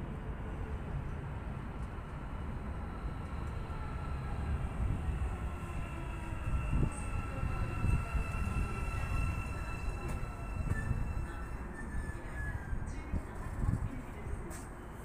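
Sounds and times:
train rumble: 0.0 - 15.0.

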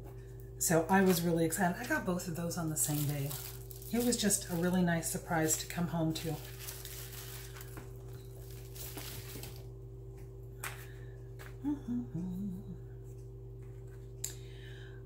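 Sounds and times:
low electrical hum: 0.0 - 15.0
rustling of handled items: 0.9 - 9.7
woman humming: 11.4 - 13.1.

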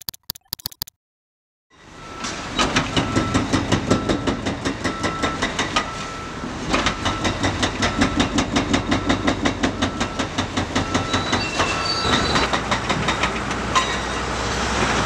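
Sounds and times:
hydraulic breaker hammering concrete: 2.7 - 5.9, 6.7 - 14.2.

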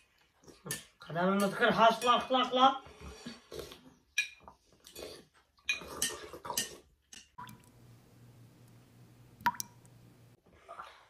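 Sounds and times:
faint steady hum: 7.4 - 10.4.

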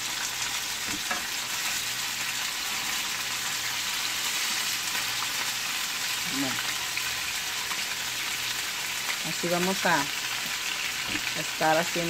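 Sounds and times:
meat sizzling in hot oil: 0.0 - 12.0.

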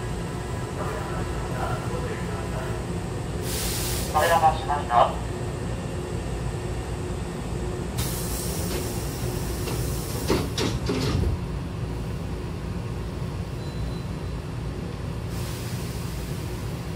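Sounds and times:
standing train hum: 0.0 - 16.9
train door hiss: 3.4 - 4.4, 8.0 - 11.4, 15.3 - 16.9
sliding doors clatter and thump: 9.6 - 11.4.

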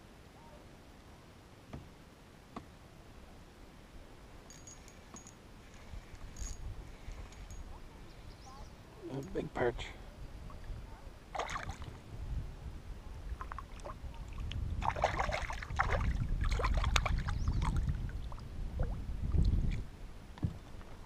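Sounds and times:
hand sloshing in water: 11.3 - 12.0.

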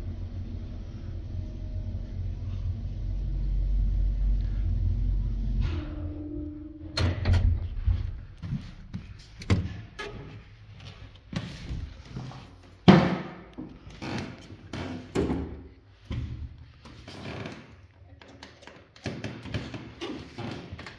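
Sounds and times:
lift humming: 0.0 - 12.8
footsteps on wooden stairs: 8.0 - 17.7
knocks and loud thud: 12.9 - 13.4.

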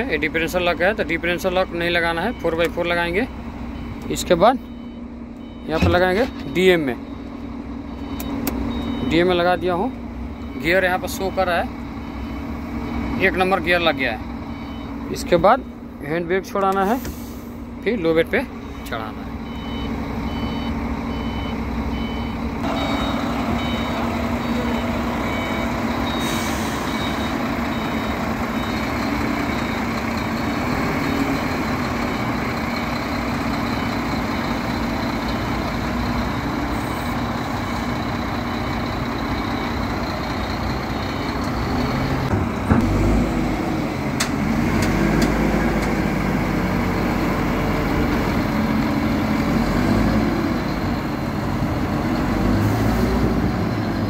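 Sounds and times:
diesel engine under load: 0.0 - 54.0
electronic beeps: 8.0 - 9.3, 19.4 - 29.8.

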